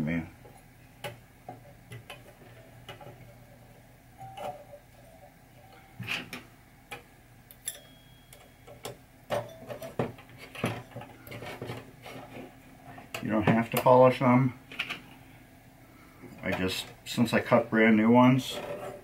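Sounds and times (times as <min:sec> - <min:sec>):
chime bars clicking: 0:07.5 - 0:08.9
faint metallic ring: 0:07.6 - 0:08.8.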